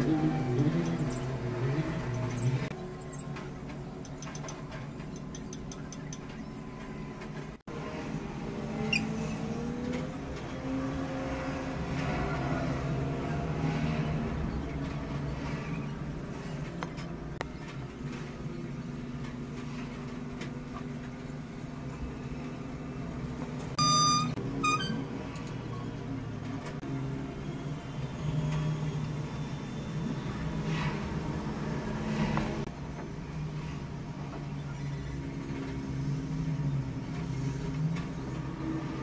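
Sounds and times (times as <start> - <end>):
short high-pitched beeps: 23.8 - 25.0.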